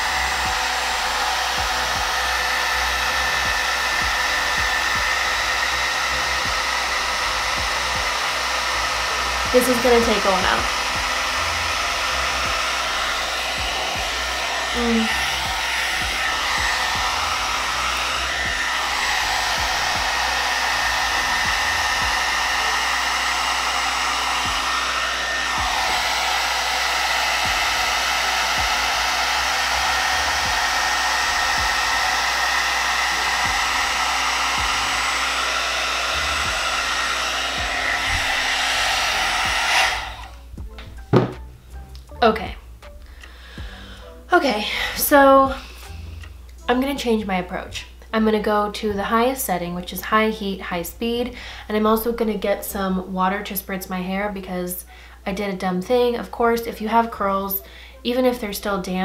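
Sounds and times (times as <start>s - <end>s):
blow dryer running: 0.0s - 41.3s, 43.6s - 45.8s.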